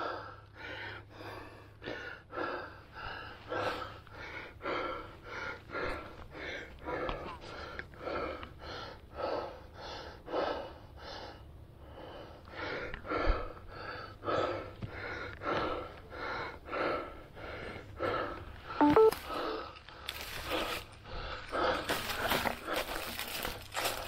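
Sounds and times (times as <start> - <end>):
person panting: 0.0 - 24.0
short tones: 18.8 - 19.2.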